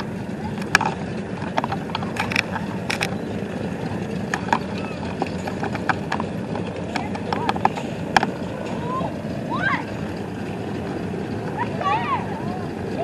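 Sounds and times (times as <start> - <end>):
crowd murmur: 0.0 - 13.0
steady low rumble: 0.0 - 13.0
sharp clicks: 0.6 - 3.3.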